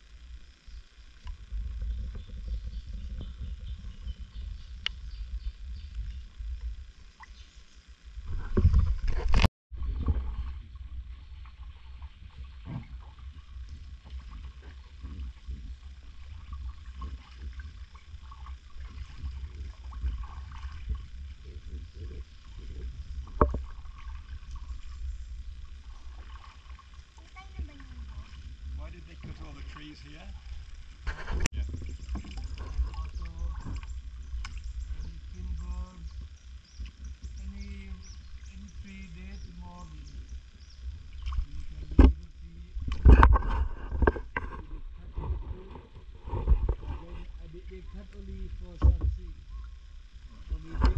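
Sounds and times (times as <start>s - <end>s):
low rumble on microphone: 0.0s - 50.9s
paddle splashes and drips: 9.9s - 21.5s, 23.2s - 30.6s, 31.2s - 34.6s, 41.0s - 43.2s.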